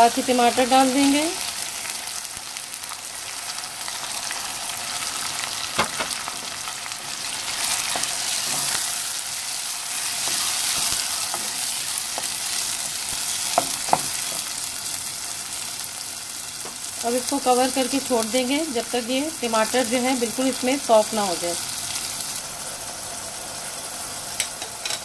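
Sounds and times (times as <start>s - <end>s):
vegetables sizzling in hot oil: 0.0s - 25.0s
wooden spoon knocking on pan: 13.5s - 14.2s.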